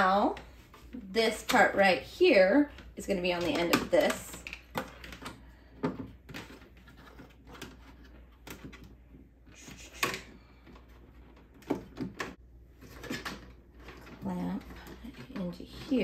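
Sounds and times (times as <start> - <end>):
plastic clicks and knocks: 2.7 - 8.9.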